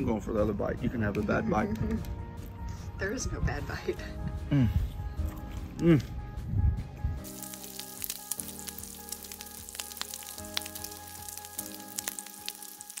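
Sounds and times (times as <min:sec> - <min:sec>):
soft music chords: 0:00.0 - 0:13.0
bacon sizzling and crackling: 0:07.2 - 0:13.0.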